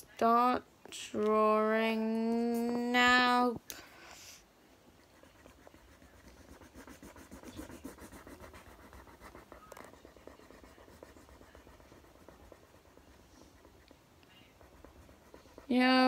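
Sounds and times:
marker pen scratching on paper: 4.9s - 16.0s.

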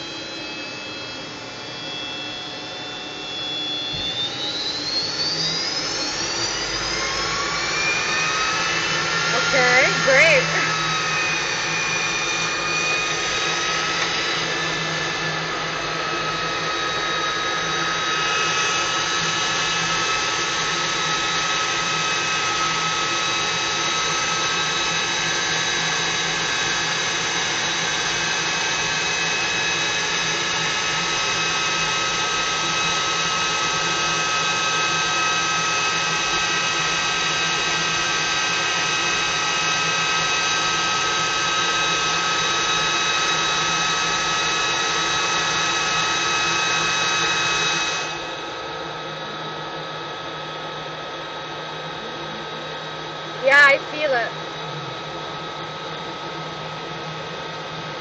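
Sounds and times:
aircraft engine whine: 0.0s - 58.0s.

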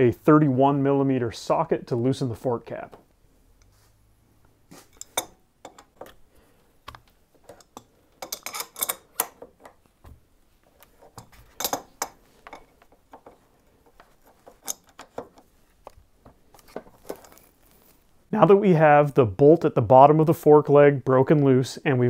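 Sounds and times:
metal hand tools clicking: 7.5s - 9.4s.

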